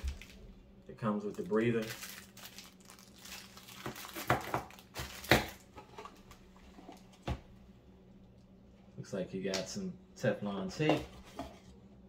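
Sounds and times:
plastic and cardboard crinkling: 0:00.0 - 0:07.2.

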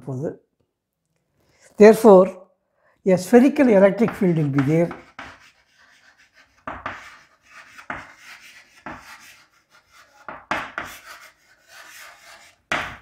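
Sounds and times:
writing tool scratching: 0:04.0 - 0:13.0.

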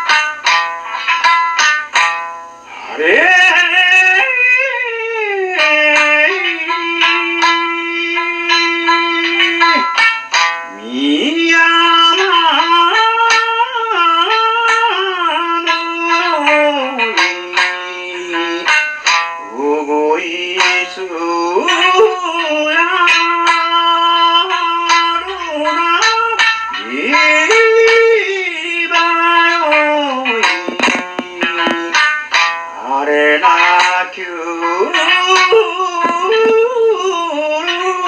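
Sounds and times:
plucked lute: 0:00.0 - 0:38.0
man singing folk song: 0:02.7 - 0:38.0.

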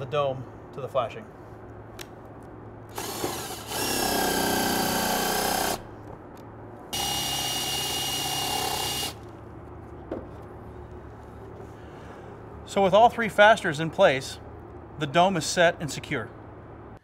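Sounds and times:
power drill whining: 0:02.9 - 0:05.8, 0:07.0 - 0:09.2.

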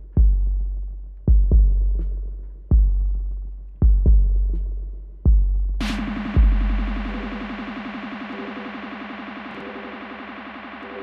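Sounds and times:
electronic bass drum: 0:00.0 - 0:11.0
buzzing synthesizer tone: 0:07.1 - 0:11.0.

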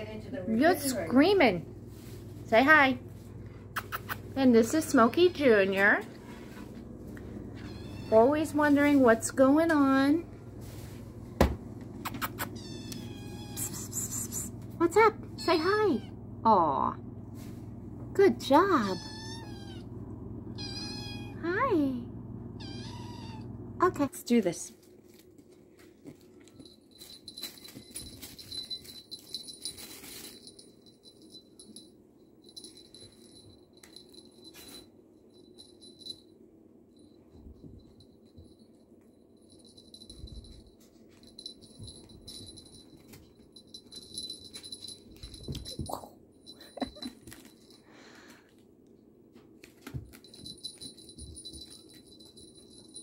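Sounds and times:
kittens scampering on carpet: 0:01.7 - 0:04.4, 0:06.0 - 0:09.2, 0:24.8 - 0:30.6
cat toy jingling and rattling: 0:07.5 - 0:11.0, 0:12.0 - 0:16.1, 0:18.4 - 0:19.8, 0:26.2 - 0:36.3, 0:36.9 - 0:47.9, 0:49.8 - 0:53.0.

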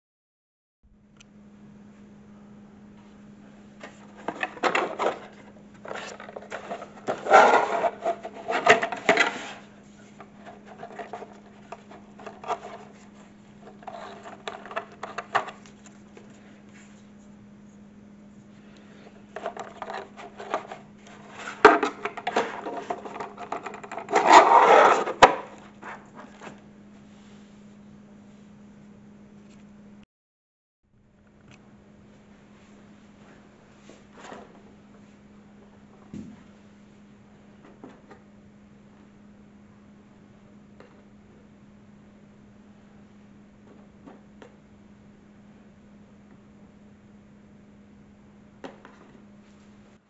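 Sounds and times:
steady low hum: 0:00.9 - 0:30.0, 0:30.9 - 0:50.0
box rubbing and scraping on table: 0:03.8 - 0:15.6, 0:19.3 - 0:26.6.

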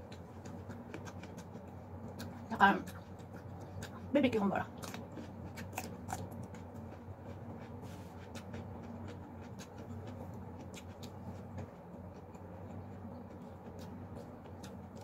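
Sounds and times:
crispy chicken tearing and chewing: 0:00.0 - 0:04.1, 0:04.7 - 0:15.0
low steady hum: 0:00.0 - 0:15.0.

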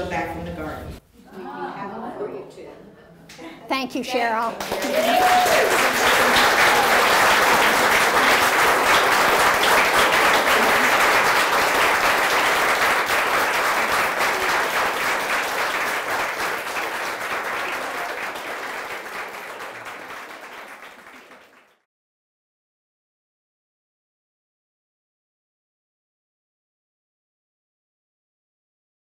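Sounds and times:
audience applauding: 0:04.5 - 0:21.8.

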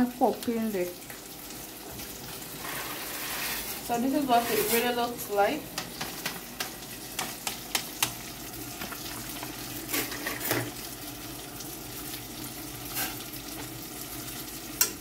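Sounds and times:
fish sizzling in a pan: 0:00.0 - 0:15.0
fork scraping a saucepan: 0:02.6 - 0:04.9, 0:12.9 - 0:13.2.

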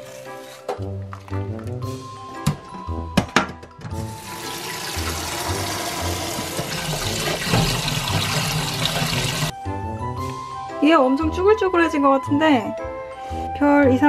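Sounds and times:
tap water rushing into metal bowl: 0:04.0 - 0:09.5.

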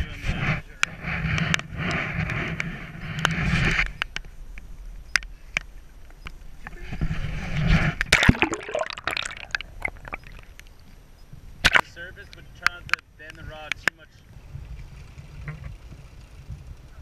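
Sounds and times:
water sloshing and gurgling: 0:07.5 - 0:11.0.

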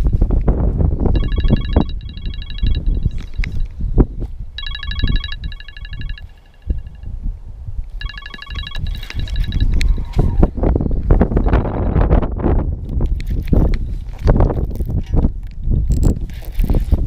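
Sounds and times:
wind rumble on microphone: 0:00.0 - 0:17.0
phone ringtone ringing: 0:01.2 - 0:03.8, 0:04.6 - 0:07.1, 0:08.0 - 0:10.0.

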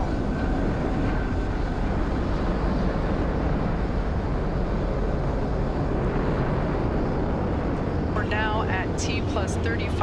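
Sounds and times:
rocket engines rumbling: 0:00.0 - 0:10.0.

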